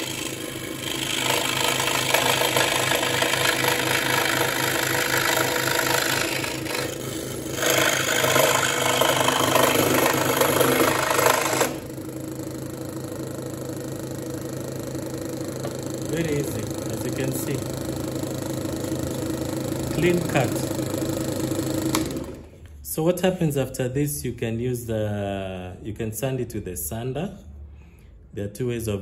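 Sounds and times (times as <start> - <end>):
scroll saw cutting plywood: 0.0 - 12.0, 15.6 - 17.7, 18.6 - 22.5.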